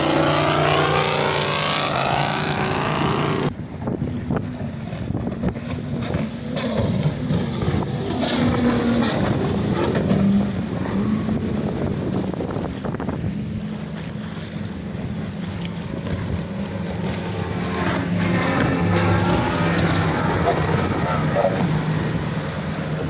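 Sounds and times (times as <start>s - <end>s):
powerboat engines droning: 0.0s - 23.0s
wind buffeting microphone: 0.0s - 23.0s.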